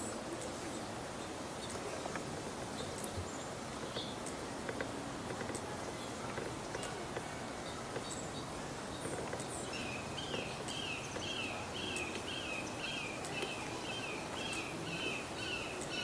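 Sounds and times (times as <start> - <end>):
outdoor background noise: 0.0 - 16.0
bird calling: 9.0 - 16.0.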